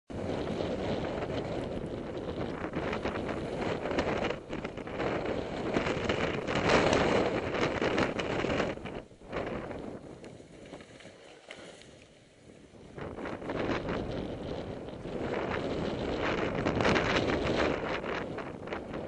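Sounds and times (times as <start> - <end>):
wind rushing over microphone: 0.1 - 19.0
snowboard scraping over snow: 0.2 - 11.8.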